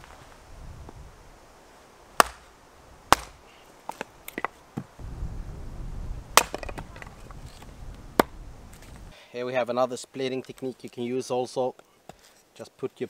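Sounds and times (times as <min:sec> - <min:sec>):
wind rumble on microphone: 0:00.0 - 0:01.4, 0:05.0 - 0:09.1
hatchet splitting log: 0:02.2 - 0:02.5, 0:03.1 - 0:04.9, 0:06.4 - 0:07.6.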